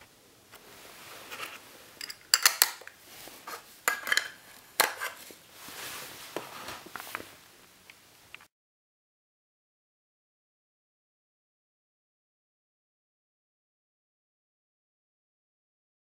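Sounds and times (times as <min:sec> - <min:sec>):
handling sounds: 0:00.6 - 0:07.4.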